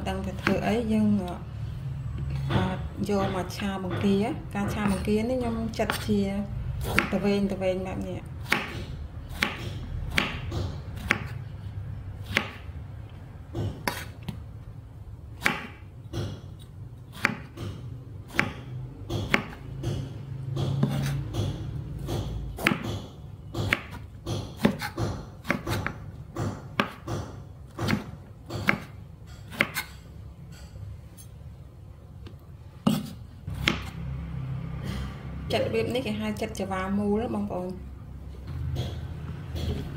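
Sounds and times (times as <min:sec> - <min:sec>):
knife chopping on wooden board: 0:06.8 - 0:07.2, 0:08.4 - 0:11.4, 0:12.2 - 0:12.7, 0:13.5 - 0:14.4, 0:15.4 - 0:30.0, 0:32.8 - 0:33.9.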